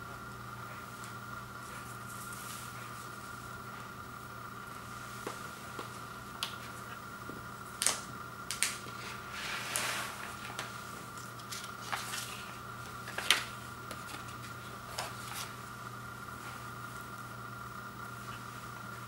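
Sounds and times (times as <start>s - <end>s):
faint hum: 0.0s - 19.0s
record sleeves rustling: 8.9s - 15.7s.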